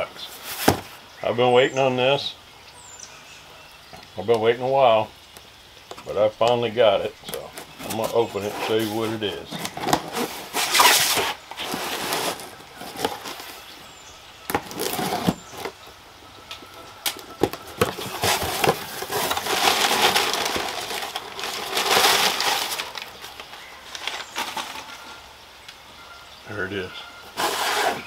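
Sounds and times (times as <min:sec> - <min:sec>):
cardboard box tearing: 0:07.6 - 0:13.7, 0:14.5 - 0:15.7, 0:17.4 - 0:23.0, 0:27.4 - 0:28.0.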